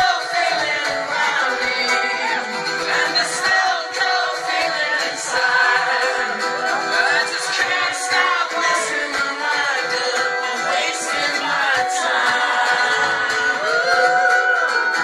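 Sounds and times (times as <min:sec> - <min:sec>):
acoustic guitar strumming: 0:00.0 - 0:15.0
man singing: 0:00.0 - 0:15.0.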